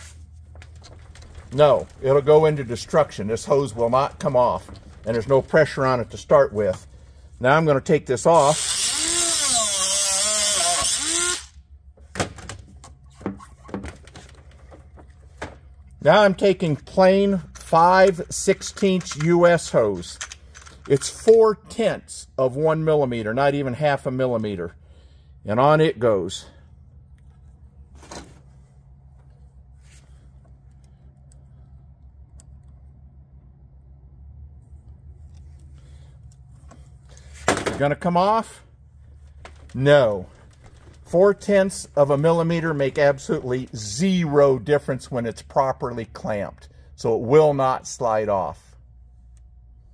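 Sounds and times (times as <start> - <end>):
hose handling rustle: 0.0 - 6.9
steady low hum: 0.0 - 49.9
rotary tool grinding metal: 8.4 - 11.5.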